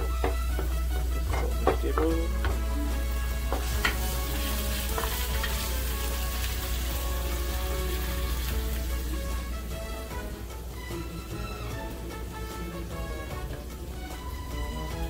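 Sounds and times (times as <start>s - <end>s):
food sizzling in a hot pan: 2.3s - 11.7s.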